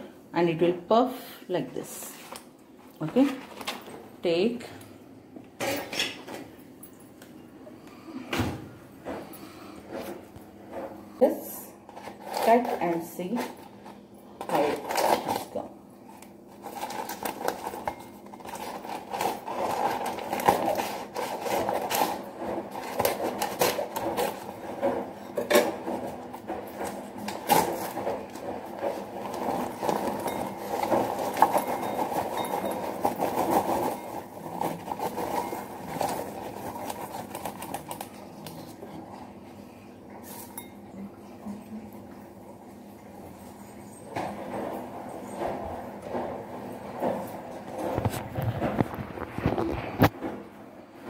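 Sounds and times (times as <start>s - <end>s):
paper bag crinkling: 12.0s - 24.9s, 26.2s - 38.9s.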